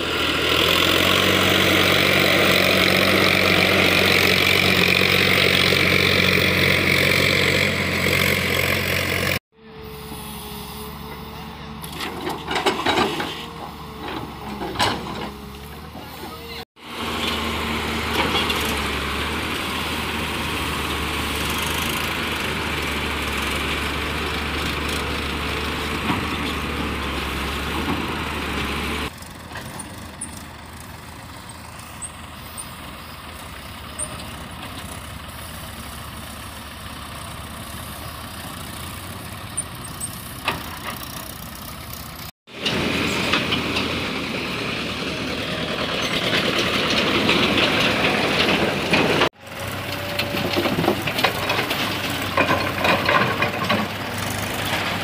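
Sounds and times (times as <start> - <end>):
diesel engine deep hum: 0.0 - 55.0
distant tractor engines: 0.0 - 55.0
tractors passing close: 0.0 - 55.0.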